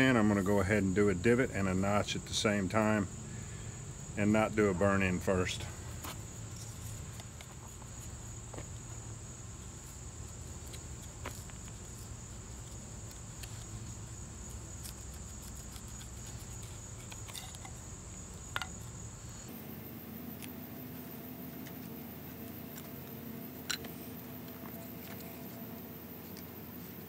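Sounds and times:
insects droning: 0.0s - 27.0s
knife cutting wood: 9.6s - 17.8s.

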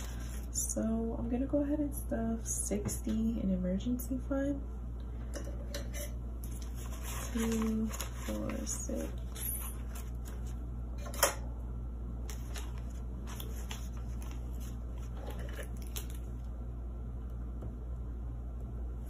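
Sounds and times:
paper banknotes rustling: 0.0s - 0.5s, 6.4s - 10.6s, 12.3s - 16.2s
steady low hum: 0.0s - 19.0s.

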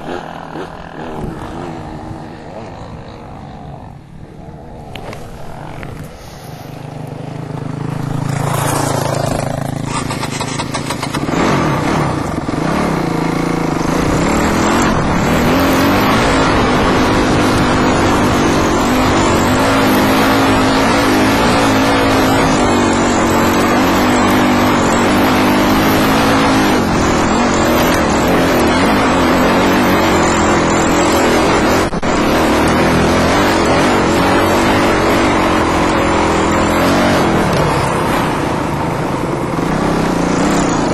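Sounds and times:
dirt bike engine running: 0.0s - 40.9s.

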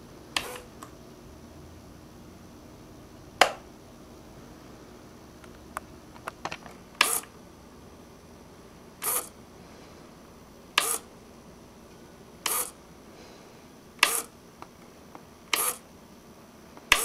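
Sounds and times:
toy machine gun bursts: 9.0s - 9.3s, 10.8s - 11.0s, 12.5s - 12.7s, 14.0s - 14.3s, 15.5s - 15.8s.

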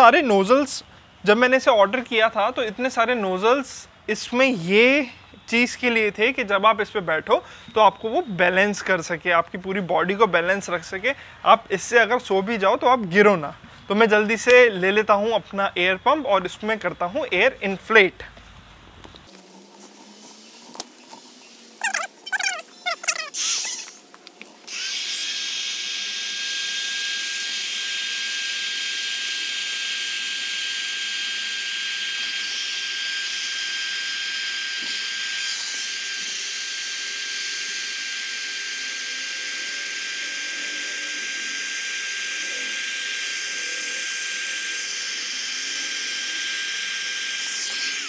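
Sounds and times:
electric air pump whining: 24.6s - 48.0s.

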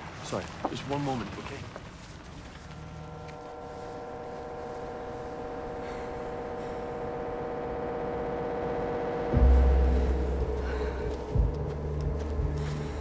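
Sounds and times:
low rumble of wind: 0.0s - 13.0s
drone of held tones: 2.6s - 13.0s.

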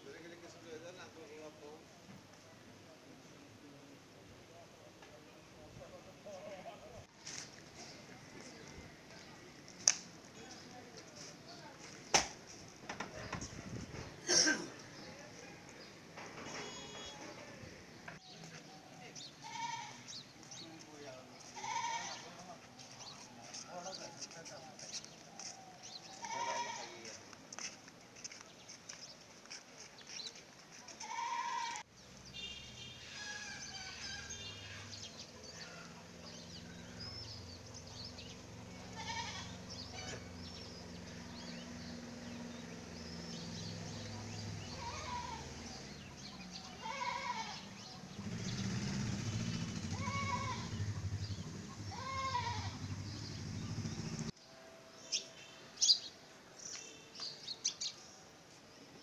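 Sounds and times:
bird chirps: 16.4s - 17.3s
goats bleating: 19.4s - 20.1s, 21.5s - 22.3s, 26.2s - 27.0s, 31.0s - 31.8s, 38.8s - 40.2s, 46.8s - 47.7s, 50.0s - 50.8s, 51.9s - 52.8s.

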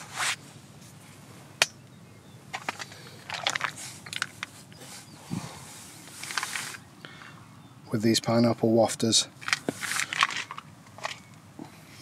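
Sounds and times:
seeds rattling in a plastic tub: 9.4s - 11.2s.

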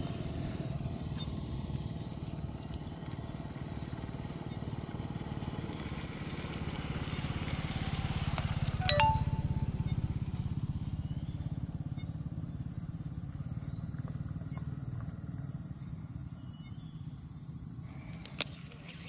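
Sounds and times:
engine running with low throb: 0.0s - 19.0s.

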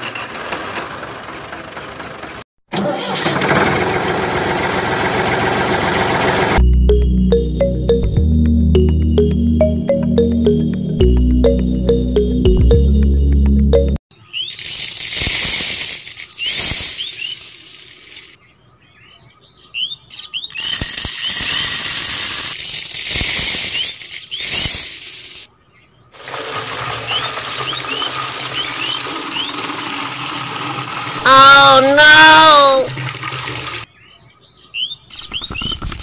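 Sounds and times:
sand and powder pouring into cup: 14.5s - 18.4s, 20.6s - 25.5s
water running into cup: 26.2s - 31.3s, 32.0s - 33.9s.

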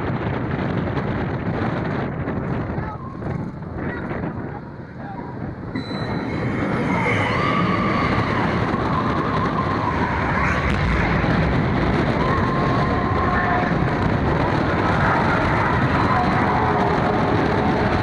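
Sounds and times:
roller coaster wheels rumbling: 0.0s - 18.0s
wavering high tone: 5.8s - 11.2s.

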